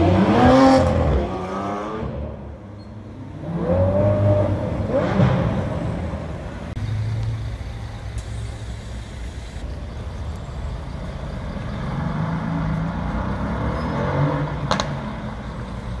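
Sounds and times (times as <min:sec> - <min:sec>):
street traffic engines: 0:00.0 - 0:16.0
heavy engine drone: 0:05.5 - 0:11.8.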